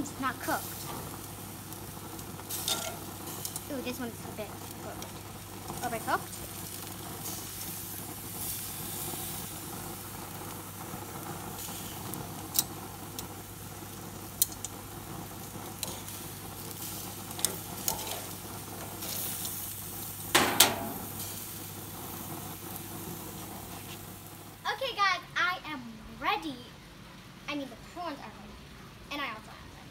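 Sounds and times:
prawns sizzling on grill: 0.0s - 29.8s
metal tongs clattering on grate: 2.5s - 3.7s, 12.5s - 12.8s, 14.4s - 14.8s, 15.8s - 16.2s, 17.3s - 19.6s, 20.3s - 21.4s.

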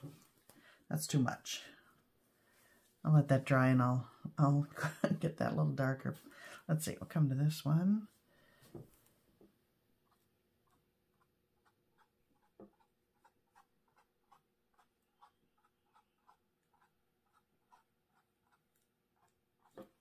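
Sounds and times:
paintbrush dabbing on canvas: 10.0s - 20.0s.

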